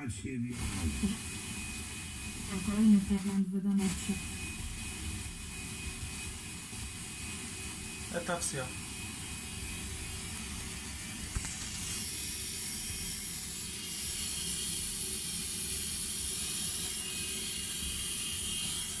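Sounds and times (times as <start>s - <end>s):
radio static hiss: 0.0s - 19.0s.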